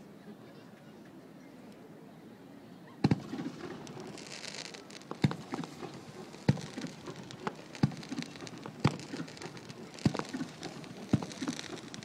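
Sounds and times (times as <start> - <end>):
fireworks bangs: 3.0 - 12.0
fireworks crackling: 3.0 - 12.0.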